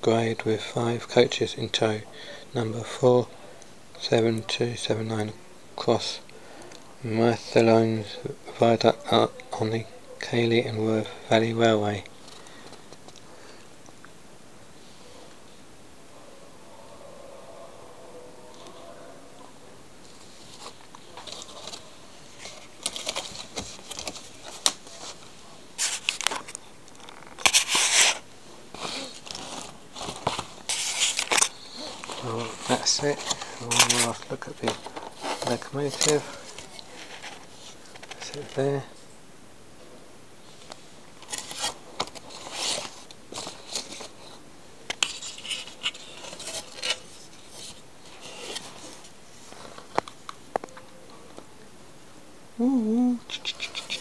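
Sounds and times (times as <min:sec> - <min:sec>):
plastic packaging crinkling: 0:20.5 - 0:38.6, 0:41.2 - 0:44.3, 0:44.9 - 0:50.1.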